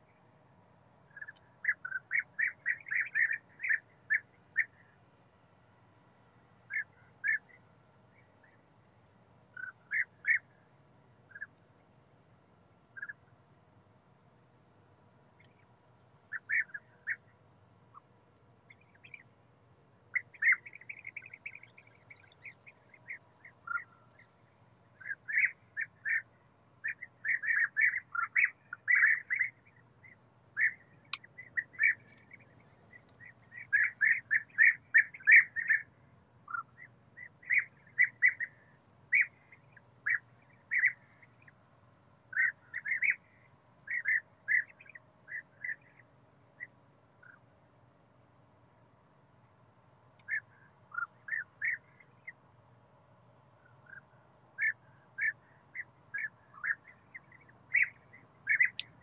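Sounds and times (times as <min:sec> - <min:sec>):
birds calling in bursts: 0:01.1 - 0:04.9, 0:06.7 - 0:07.6, 0:09.5 - 0:10.5, 0:16.3 - 0:17.3, 0:20.1 - 0:24.4, 0:25.0 - 0:41.5, 0:42.3 - 0:46.0, 0:50.2 - 0:52.3, 0:53.6 - 0:59.0.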